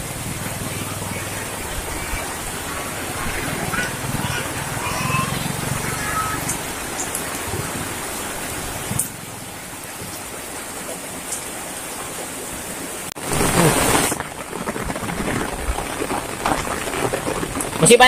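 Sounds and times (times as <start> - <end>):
heavy rain on wet ground: 0.0 - 18.0
loud burst of noise: 13.2 - 15.6.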